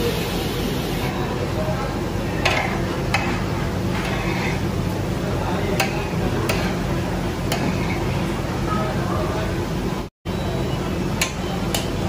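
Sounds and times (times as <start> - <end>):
metal spatula scraping steel tray: 2.3 - 4.8, 5.8 - 6.9, 7.5 - 8.3.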